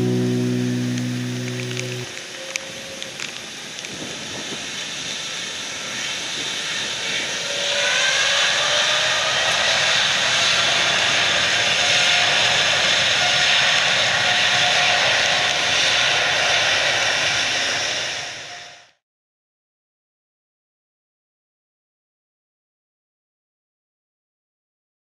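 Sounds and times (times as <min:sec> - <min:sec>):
jet engines roaring: 0:00.0 - 0:18.8
hiss of spray and rain: 0:01.4 - 0:07.6.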